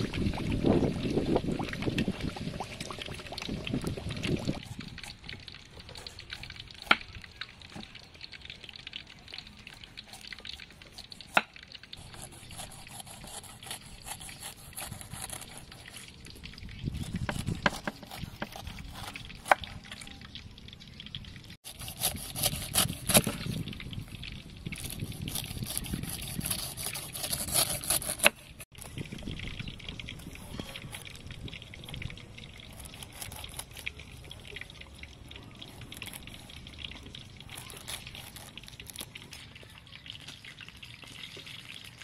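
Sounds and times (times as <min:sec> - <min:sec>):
knife cutting pineapple rind: 0:09.7 - 0:20.0, 0:21.6 - 0:23.6, 0:24.7 - 0:28.8, 0:32.5 - 0:34.4, 0:35.6 - 0:39.4.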